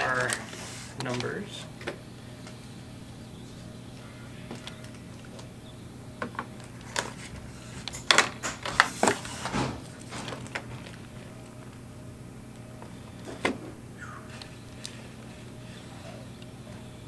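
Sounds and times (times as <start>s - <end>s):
plastic packaging crinkling: 0.0s - 1.5s, 6.6s - 11.9s
faint steady hum: 0.0s - 17.0s.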